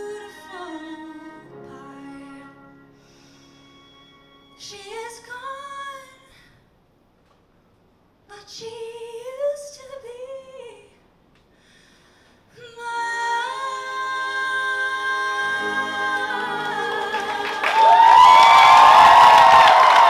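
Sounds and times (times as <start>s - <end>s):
woman singing: 0.0s - 2.7s, 4.6s - 6.5s, 8.3s - 11.0s, 12.5s - 18.0s
audience applause and cheering: 16.1s - 20.0s.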